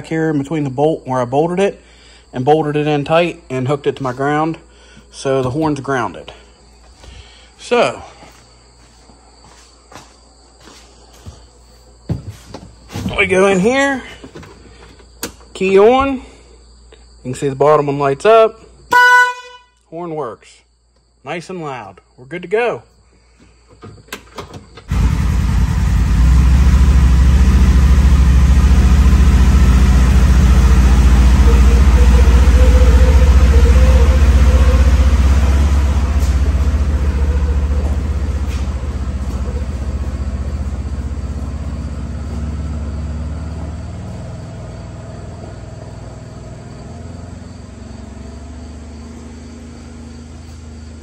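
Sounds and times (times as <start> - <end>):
engine low rumble: 24.9 - 51.0.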